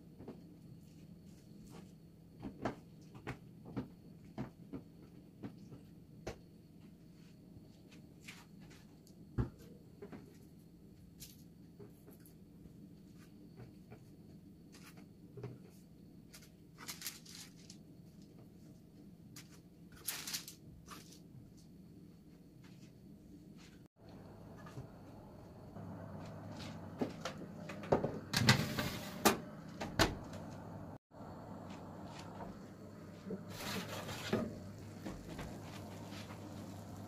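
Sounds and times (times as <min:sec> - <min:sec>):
steady low hum: 0:21.8 - 0:37.0.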